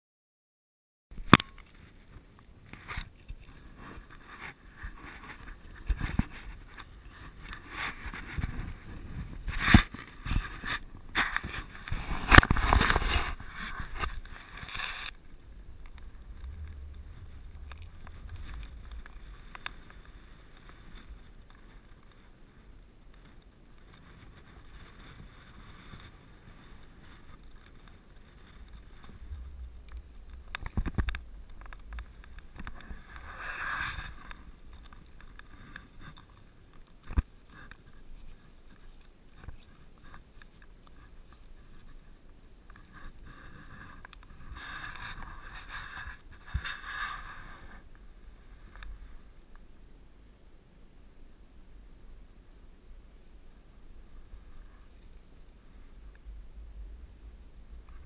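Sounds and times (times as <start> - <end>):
wind on microphone: 2.6 - 21.9, 23.9 - 36.2.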